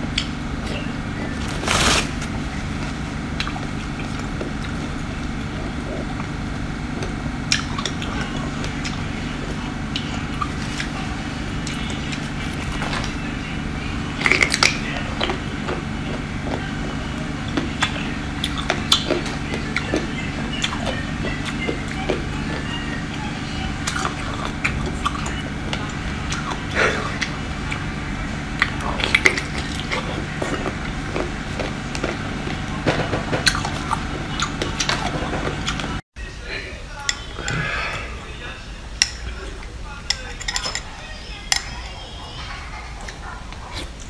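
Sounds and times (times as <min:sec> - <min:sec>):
steady low hum: 0:00.0 - 0:44.0
wet chewing and smacking: 0:02.6 - 0:13.3, 0:14.2 - 0:22.8, 0:23.8 - 0:36.0.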